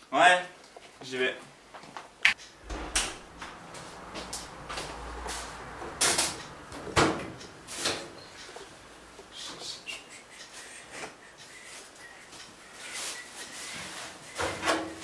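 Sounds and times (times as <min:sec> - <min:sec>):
sharp knocks: 0:02.6 - 0:04.5.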